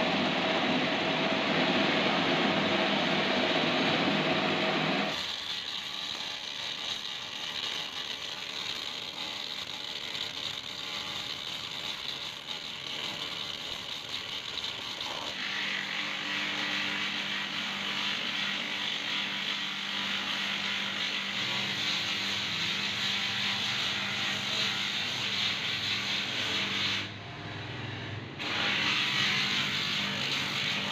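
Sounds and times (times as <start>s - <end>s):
machine hum: 0.0s - 5.2s
bench grinder sanding wood: 0.0s - 27.1s, 28.4s - 30.9s.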